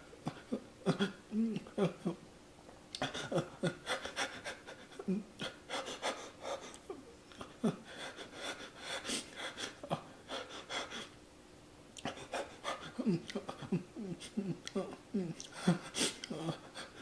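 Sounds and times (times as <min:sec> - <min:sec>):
man moaning: 0:00.9 - 0:02.2, 0:12.9 - 0:17.0
man panting hard: 0:03.0 - 0:06.8, 0:07.7 - 0:11.2, 0:12.0 - 0:14.5, 0:15.5 - 0:17.0.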